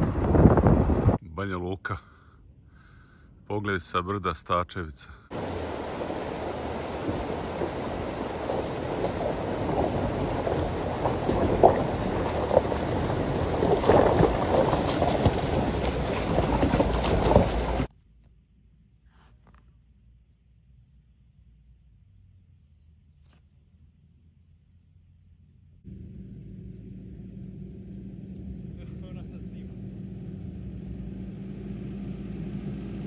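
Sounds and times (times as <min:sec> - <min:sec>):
wind buffeting microphone: 0:00.0 - 0:01.2, 0:05.3 - 0:17.9
vehicle engine hum: 0:00.0 - 0:01.3, 0:05.3 - 0:17.9, 0:23.8 - 0:33.0
cricket chirping: 0:05.4 - 0:31.7.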